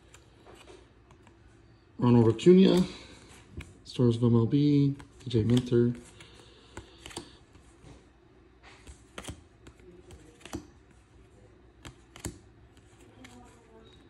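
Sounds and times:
cards sliding over cards: 4.9s - 13.8s
card snapping clicks: 11.8s - 12.4s.

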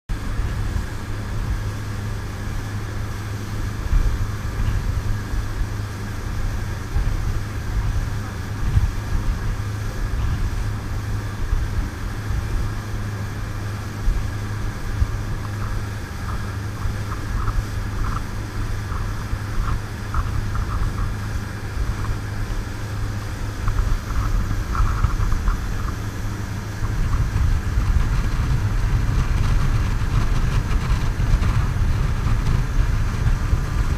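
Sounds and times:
boat engine droning: 0.1s - 33.9s.

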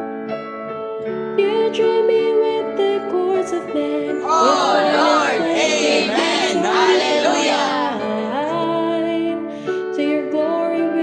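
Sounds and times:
person singing: 4.1s - 8.8s
instrumental accompaniment: 4.2s - 8.3s.

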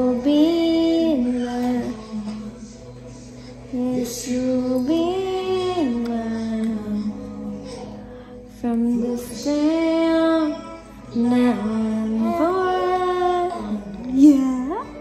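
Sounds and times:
woman singing slow song: 0.0s - 15.0s.

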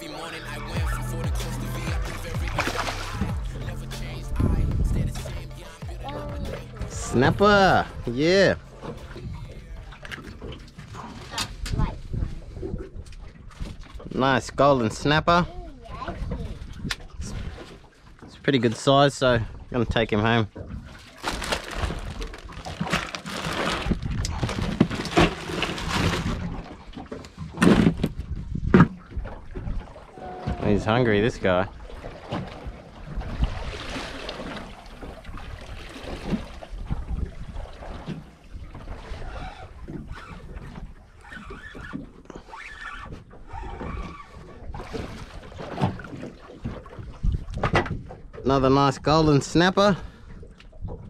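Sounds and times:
water lapping against boat hull: 0.0s - 51.0s
fish splashing out of water: 2.0s - 3.3s
wind buffeting microphone: 4.3s - 9.8s, 11.4s - 14.2s, 27.9s - 31.4s, 35.0s - 41.1s
ice shifting in a cooler: 21.0s - 26.7s
plastic bags rustling: 21.2s - 26.4s.

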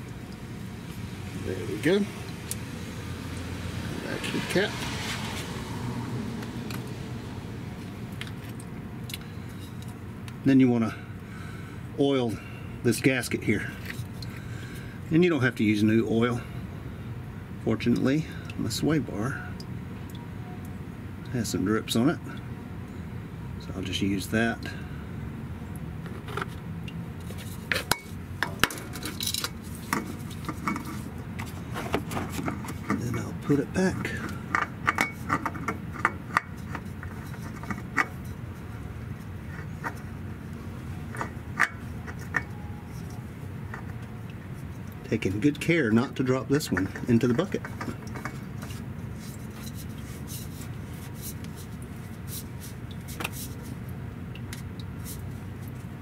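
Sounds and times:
oil filter clicks and scrapes: 7.8s - 10.4s, 13.0s - 15.1s, 25.8s - 56.0s.

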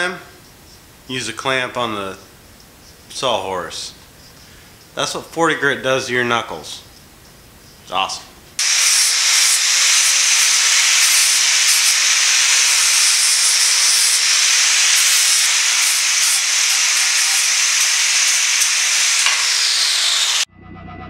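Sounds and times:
angle grinder whining: 8.6s - 20.5s.

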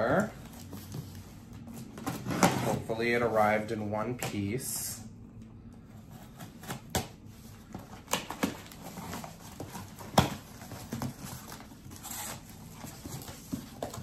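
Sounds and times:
cardboard crinkles and scrapes: 6.0s - 14.0s.

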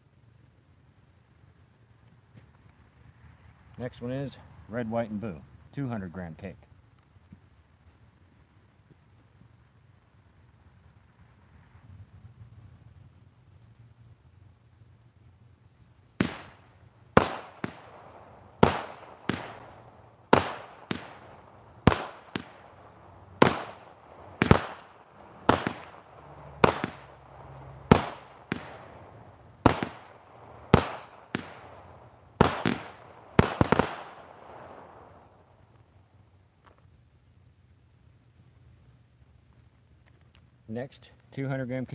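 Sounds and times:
firework bangs: 16.2s - 35.4s.

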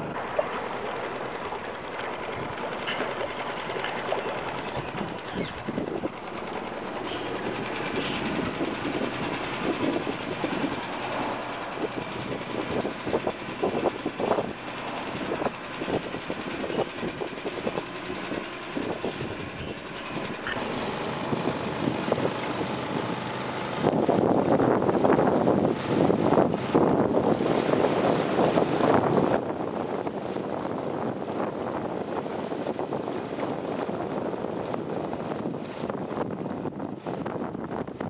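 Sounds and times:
boat motor running: 0.0s - 38.0s.

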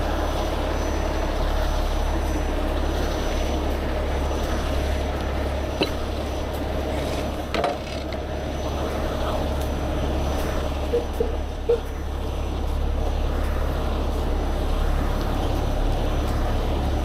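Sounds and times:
small knocks: 7.5s - 8.2s.

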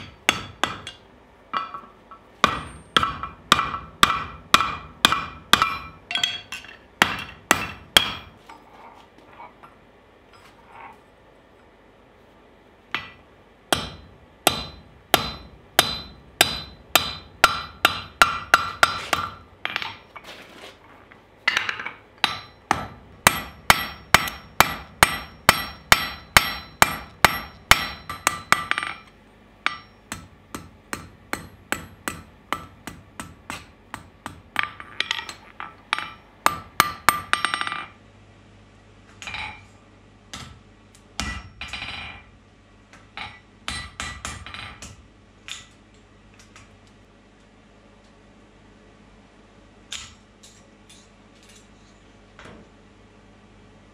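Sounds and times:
hammer striking steel on anvil: 0.0s - 8.4s, 12.9s - 20.1s, 21.5s - 38.0s, 41.2s - 42.3s, 43.2s - 45.7s.

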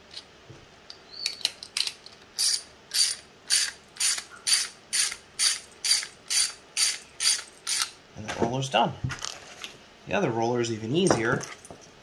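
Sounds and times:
parts being handled clicks: 0.1s - 8.0s.

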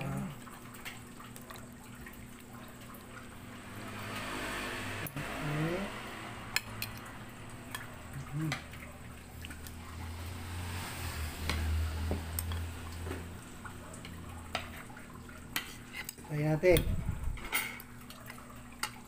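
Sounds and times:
spoons clinking on plates: 15.5s - 17.9s.

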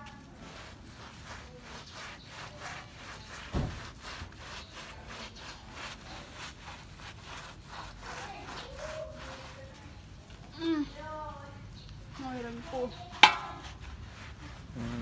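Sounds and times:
brush scrubbing wet dog: 0.0s - 15.0s
dull thump: 3.5s - 3.9s.

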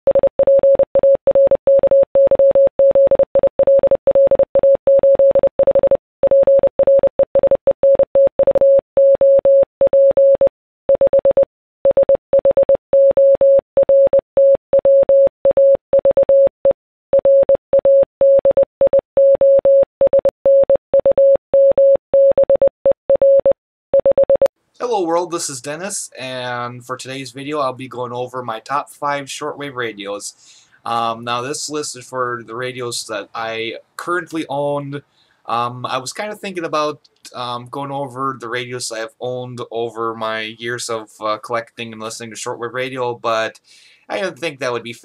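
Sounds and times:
morse code beeps: 0.1s - 24.5s.

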